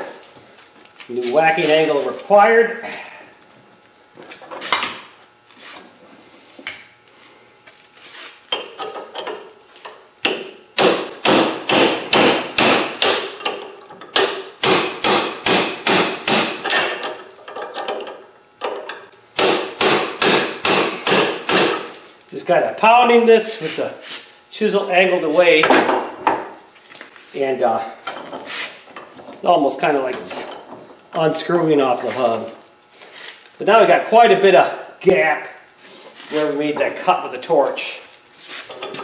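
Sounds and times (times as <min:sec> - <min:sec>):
hammer striking chisel on metal: 0:10.2 - 0:17.2, 0:19.4 - 0:21.9.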